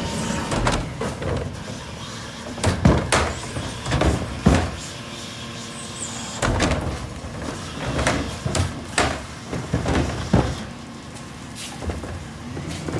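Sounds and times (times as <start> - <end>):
diesel engine running: 0.0 - 12.9
trash cart banging against tipper: 2.5 - 4.8, 6.4 - 10.8.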